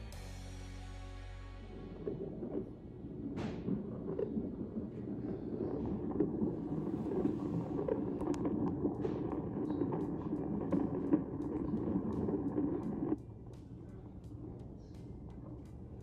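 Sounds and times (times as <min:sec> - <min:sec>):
low uneven rumbling: 0:01.6 - 0:16.0
faint clicks: 0:03.7 - 0:16.0.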